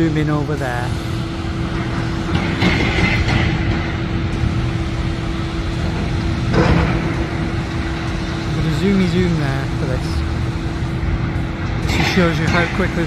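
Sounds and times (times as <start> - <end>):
engine drone: 0.0 - 13.0.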